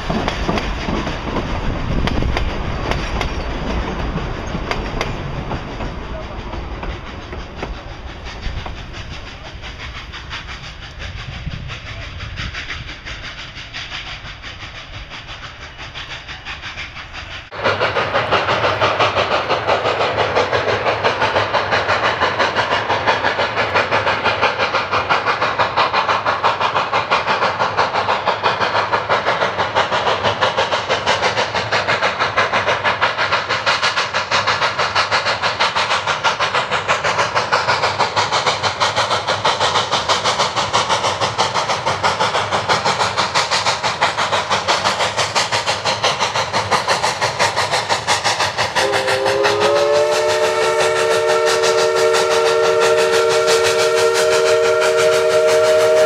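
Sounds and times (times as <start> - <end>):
steam locomotive exhaust beating: 0.0 - 56.0
chime steam whistle: 48.8 - 56.0.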